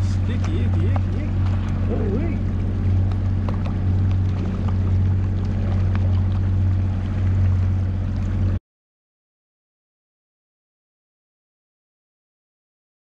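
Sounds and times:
boat motor running: 0:00.0 - 0:08.6
water and wind noise: 0:00.0 - 0:08.6.

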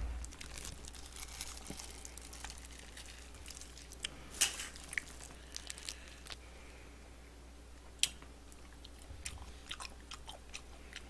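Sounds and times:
low steady hum: 0:00.0 - 0:11.0
wet mouth eating noises: 0:08.0 - 0:11.0.

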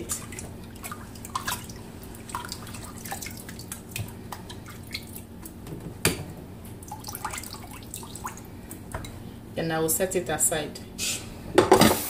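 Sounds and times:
water splashing and dripping: 0:00.0 - 0:05.5, 0:06.8 - 0:08.4.

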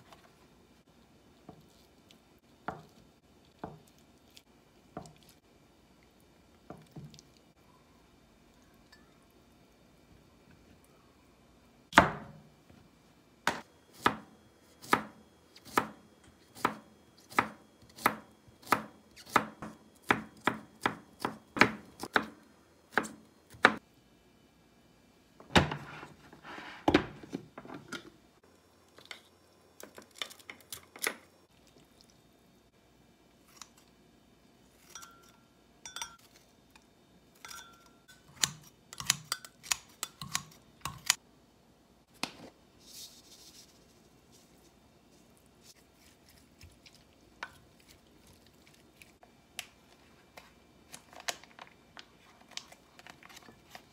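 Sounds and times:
knife chopping on wooden board: 0:13.5 - 0:16.0, 0:16.6 - 0:23.8
light clinks on glass mug: 0:35.0 - 0:36.2.

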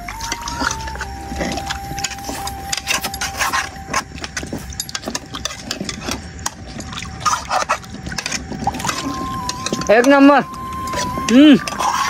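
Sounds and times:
thin high tone: 0:00.0 - 0:05.9, 0:08.7 - 0:12.0
utensils scraping against pot: 0:00.2 - 0:10.1, 0:10.9 - 0:12.0.

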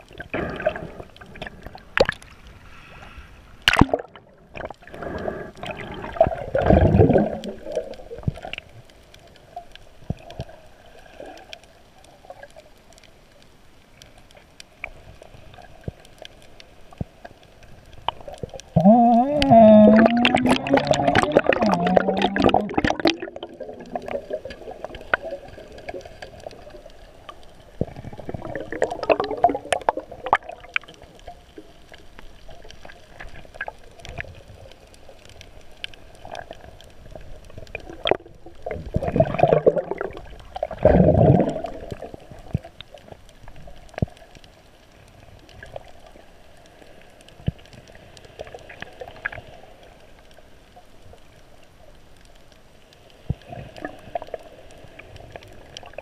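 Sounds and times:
surges of moving water: 0:00.0 - 0:56.0
underwater water noise: 0:00.0 - 0:56.0
faint clicks: 0:22.8 - 0:39.1.

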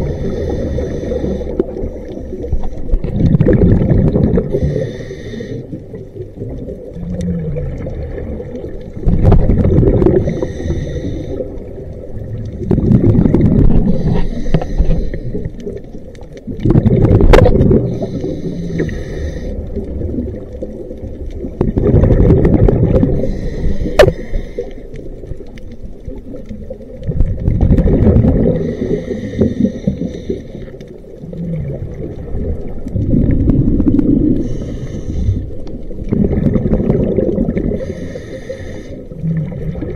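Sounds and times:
regulator inhale hiss: 0:00.0 - 0:03.0, 0:04.4 - 0:06.0, 0:10.1 - 0:11.8, 0:13.8 - 0:15.6, 0:17.8 - 0:19.8, 0:23.1 - 0:25.2, 0:28.5 - 0:30.9, 0:34.3 - 0:35.8, 0:37.7 - 0:39.3
exhaled bubbling underwater: 0:00.0 - 0:39.9.

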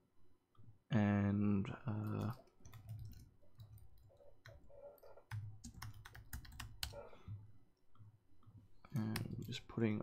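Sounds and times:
typing on a keyboard: 0:02.0 - 0:07.1.

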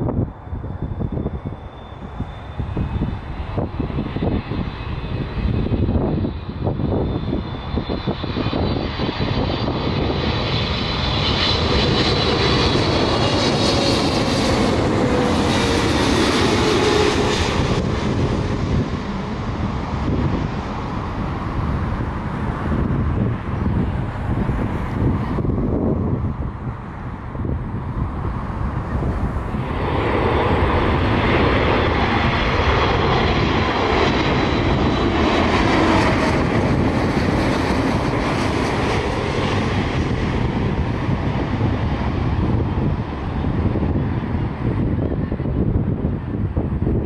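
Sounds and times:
jet airliner passing overhead: 0:00.0 - 0:47.0.

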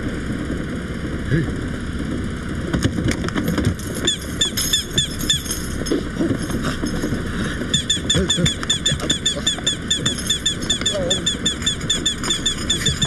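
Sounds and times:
toy duck squeaky quacks: 0:07.7 - 0:13.0.

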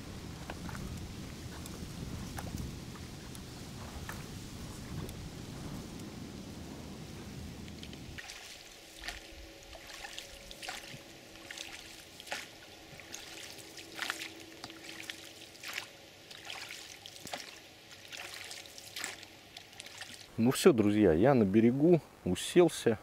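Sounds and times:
water trickling off oars: 0:07.6 - 0:20.3
oars splashing in water: 0:08.2 - 0:20.3.

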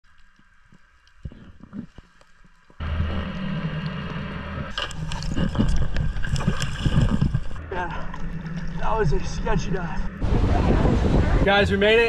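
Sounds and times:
rushing water: 0:00.0 - 0:12.0
water splashing: 0:00.0 - 0:12.0
boat engine humming: 0:02.8 - 0:12.0.

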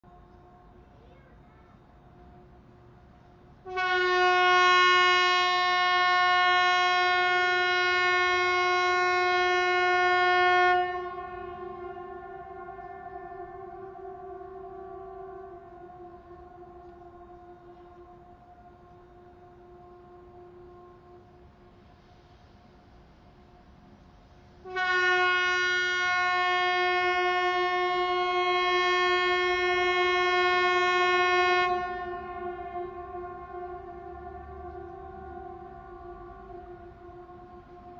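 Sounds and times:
near air raid siren tone: 0:03.6 - 0:21.8, 0:24.6 - 0:37.9
faint siren tone: 0:11.1 - 0:21.8, 0:29.1 - 0:37.9.

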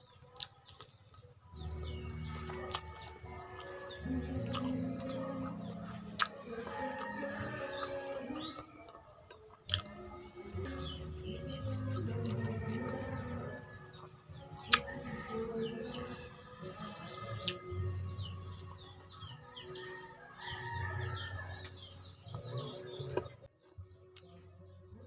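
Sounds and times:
small birds chirping: 0:00.0 - 0:25.0
chewing sounds: 0:00.2 - 0:10.8, 0:11.5 - 0:16.3.

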